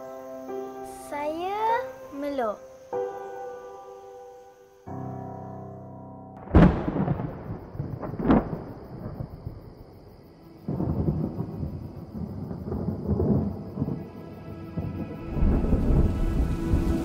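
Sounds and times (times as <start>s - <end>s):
low thunder rumble: 6.4s - 17.0s
thunder crack: 6.4s - 17.0s.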